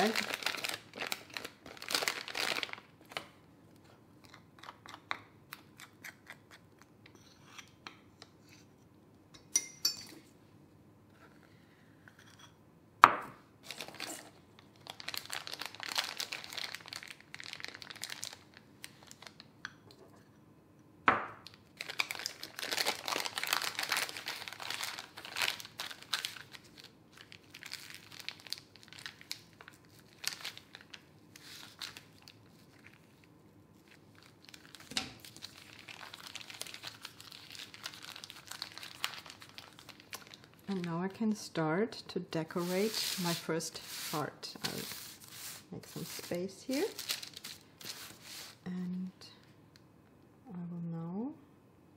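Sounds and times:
plastic piping bag crinkling: 0.0s - 3.2s, 13.6s - 19.5s, 21.4s - 41.0s, 42.5s - 48.6s.

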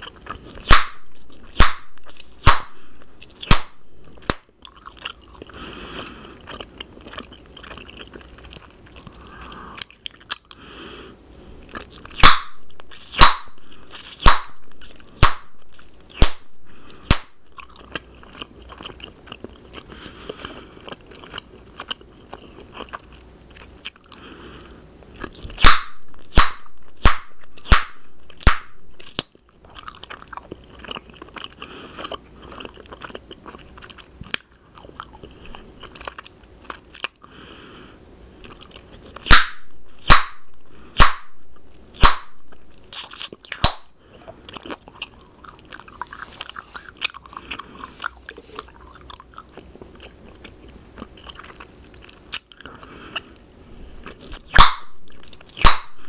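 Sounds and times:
gum chewing with wet mouth sounds: 0.0s - 37.4s, 38.3s - 56.0s
sharp gum pops: 0.6s - 4.5s, 12.1s - 17.6s, 25.6s - 29.3s, 39.2s - 43.9s, 54.2s - 56.0s.

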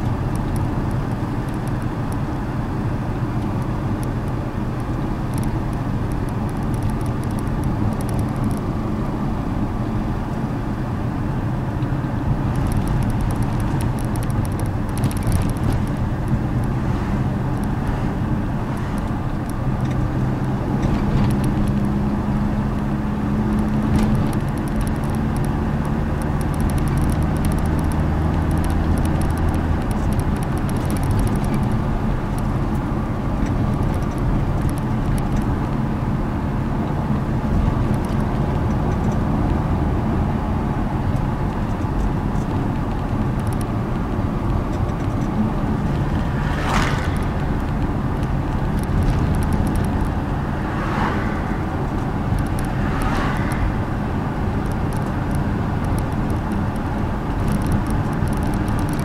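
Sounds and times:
engine and tyres rumbling: 0.0s - 59.0s
short whooshes: 46.4s - 47.4s.

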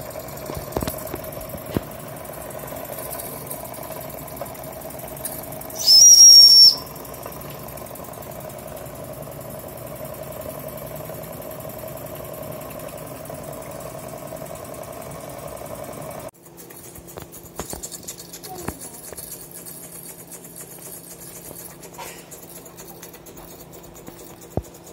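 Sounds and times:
steam engine running: 0.0s - 24.9s
steam whistle: 5.8s - 7.0s.

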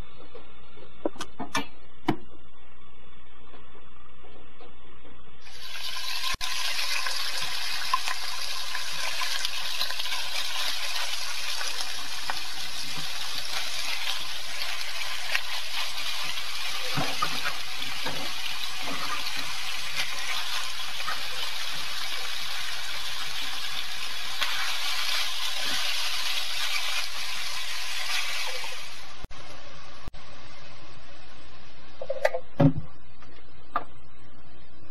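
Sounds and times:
pork sizzling in a frying pan: 5.5s - 29.2s.

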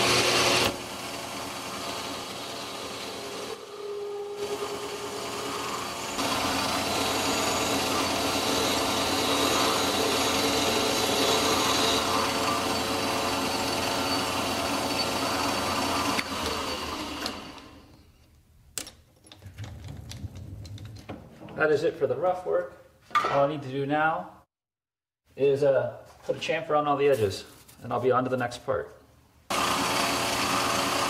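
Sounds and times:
metal lathe cutting: 0.0s - 17.8s, 29.5s - 31.0s.

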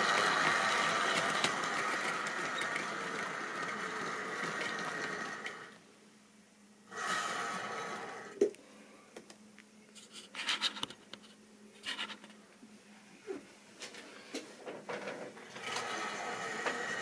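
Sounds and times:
faint steady hum: 0.0s - 17.0s
small electric motor whining: 15.6s - 17.0s.

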